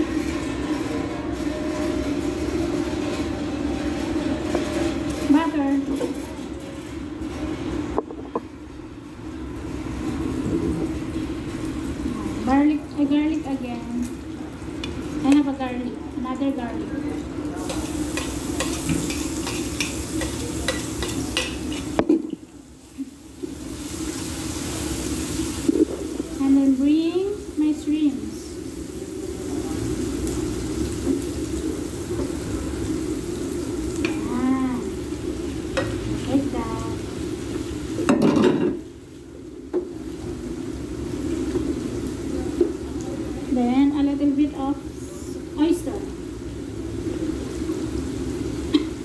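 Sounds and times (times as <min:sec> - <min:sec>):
oil sizzling in frying pan: 0:00.0 - 0:49.0.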